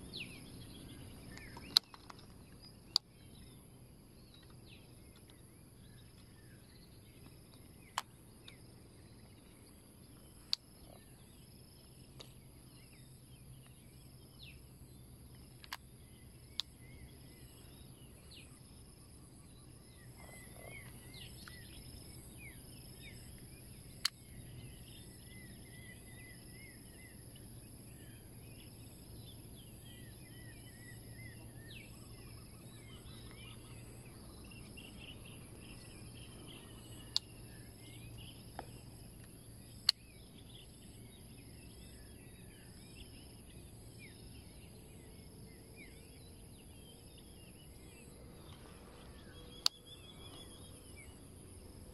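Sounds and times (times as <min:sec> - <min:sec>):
birds chirping: 0:00.0 - 0:51.9
high insect drone: 0:00.0 - 0:51.9
sharp clicks: 0:01.3 - 0:02.3.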